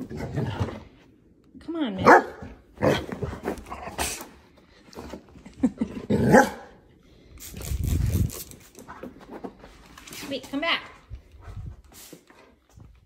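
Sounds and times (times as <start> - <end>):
dog barking: 2.0 - 3.0, 6.3 - 6.7.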